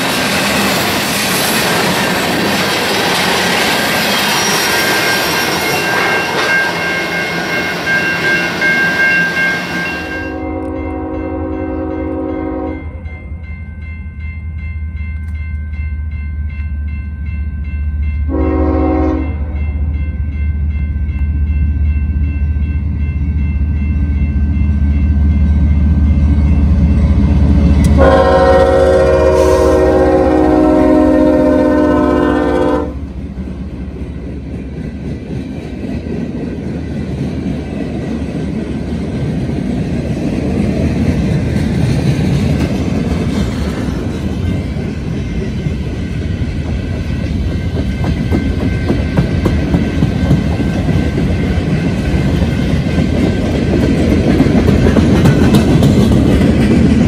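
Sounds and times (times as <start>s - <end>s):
freight cars rolling on rails: 0.0s - 10.4s, 33.1s - 57.0s
diesel locomotive rumbling: 0.0s - 57.0s
train horn blasts: 9.9s - 13.1s, 18.3s - 19.6s, 27.8s - 33.1s.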